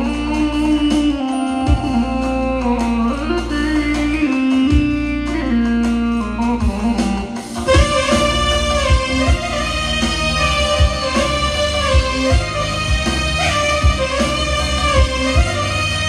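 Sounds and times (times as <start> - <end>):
electronic keyboard music: 0.0 - 16.0
drum hits: 7.4 - 16.0.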